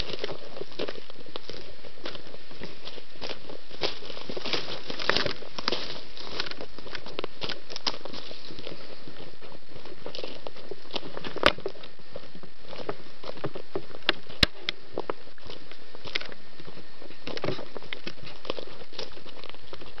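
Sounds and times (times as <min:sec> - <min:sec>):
footsteps crunching on forest floor: 0:00.0 - 0:20.0
twigs snapping: 0:02.8 - 0:08.8.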